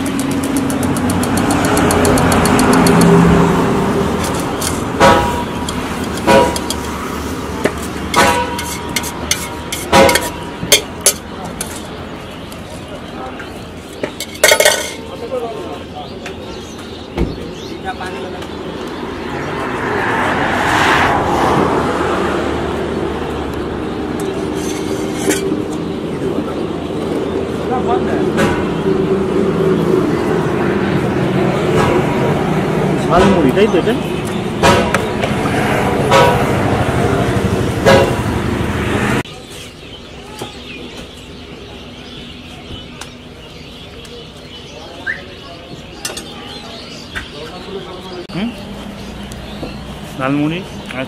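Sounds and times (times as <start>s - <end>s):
vehicle passing by: 0.0s - 9.8s, 18.0s - 39.3s
small birds chirping: 0.0s - 20.8s, 21.4s - 38.1s, 39.2s - 51.0s
engine hum: 0.0s - 39.4s, 40.8s - 51.0s
busy street noise: 0.0s - 51.0s.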